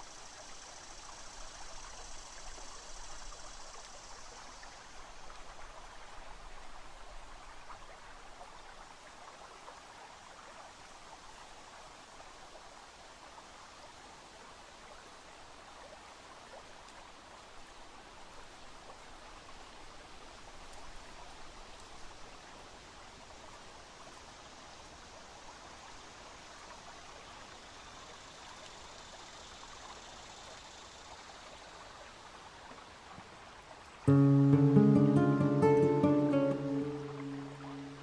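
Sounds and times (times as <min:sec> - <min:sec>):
river water rushing: 0:34.0 - 0:38.0.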